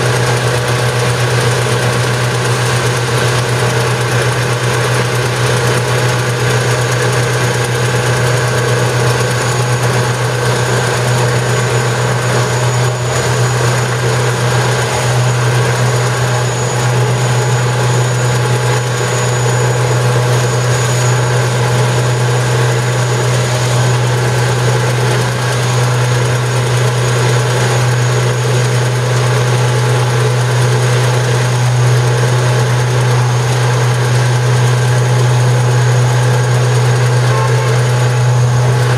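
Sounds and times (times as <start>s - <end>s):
truck engine droning: 0.0s - 38.9s.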